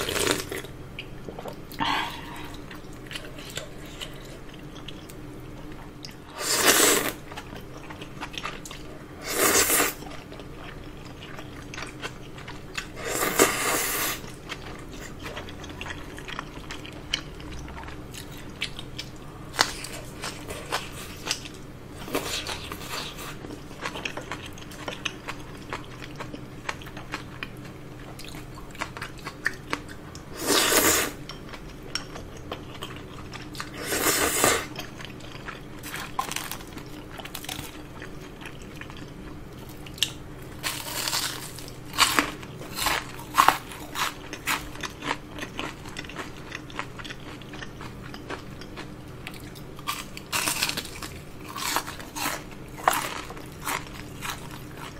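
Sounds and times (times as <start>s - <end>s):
soft chewing: 0.0s - 6.2s, 7.1s - 30.3s, 31.1s - 54.9s
loud noodle slurps: 6.4s - 7.2s.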